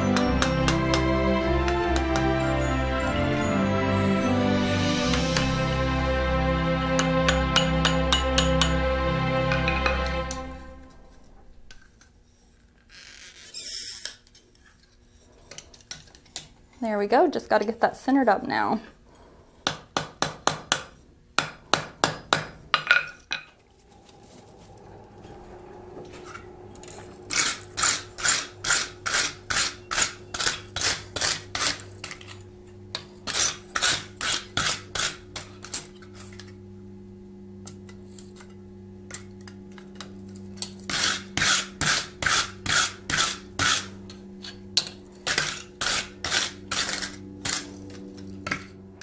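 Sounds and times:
hammer blows on anvil: 0.0s - 2.5s, 6.8s - 10.6s
steady low hum: 14.2s - 49.0s
wire brush scrubbing steel: 26.8s - 36.4s, 40.6s - 48.6s.

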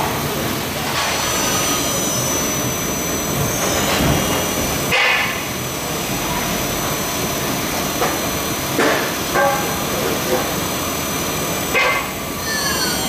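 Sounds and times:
high machine whine: 0.0s - 13.0s
lathe machine noise: 0.4s - 13.0s
falling whine: 0.9s - 8.0s.

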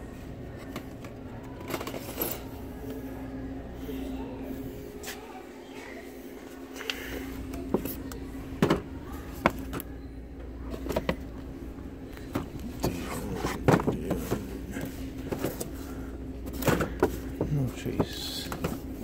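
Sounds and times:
steady low hum: 0.0s - 19.0s
packages knocking and scraping: 12.2s - 19.0s.

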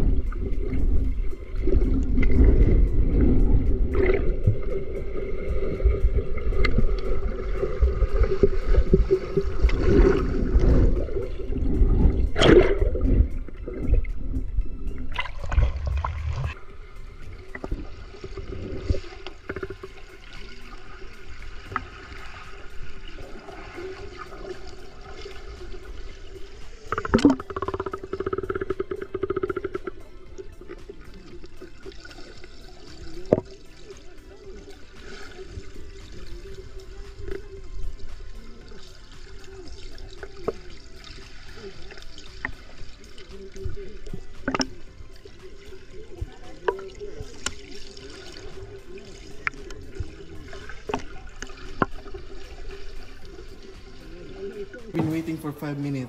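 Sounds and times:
water sloshing and gurgling: 0.0s - 56.0s
sharp water splashes: 11.8s - 13.3s.

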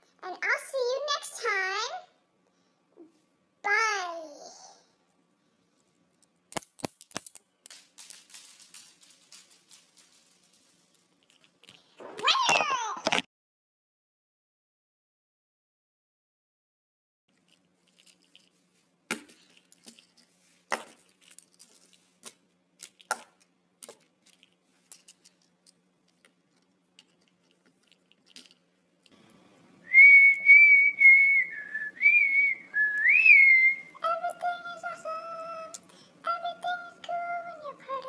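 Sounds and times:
plastic pieces clicking and knocking: 6.1s - 11.9s, 19.1s - 29.2s
loud wavering whistling: 29.9s - 34.0s.

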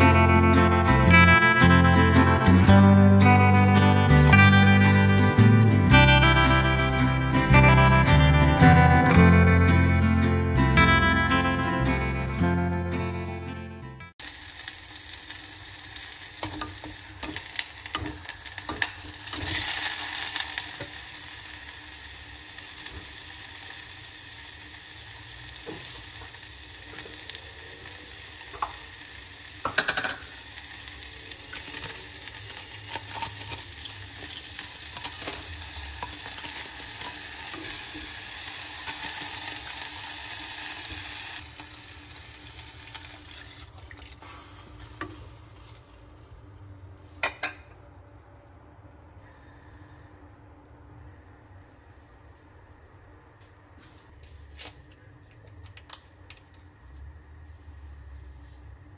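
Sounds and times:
meat sizzling in a pot: 14.2s - 46.6s.

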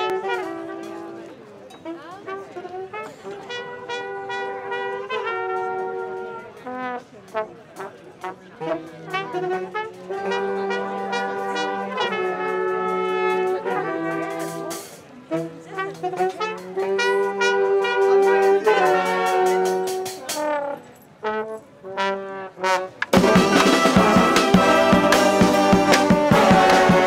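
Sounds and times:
brass band playing: 0.0s - 27.0s
bass drum beat: 23.2s - 27.0s.

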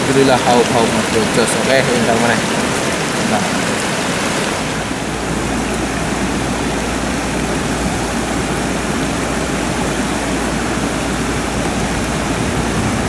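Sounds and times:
water pouring over weir: 0.0s - 13.0s
low rumble: 4.6s - 13.0s.

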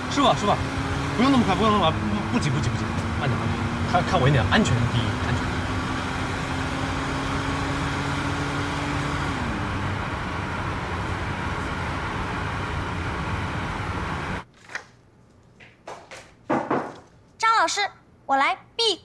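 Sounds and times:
car road and engine noise: 0.0s - 14.5s.

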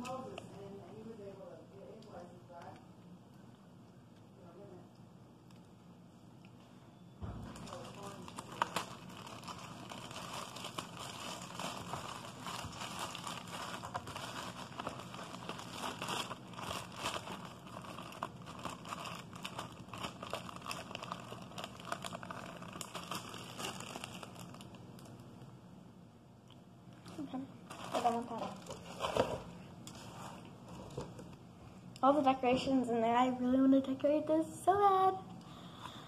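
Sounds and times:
plastic bag crinkling: 7.5s - 25.3s, 27.6s - 31.2s.

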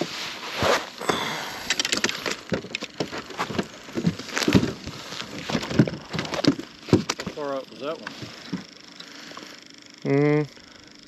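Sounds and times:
clicks knocks and rattles of handling: 1.7s - 7.4s.

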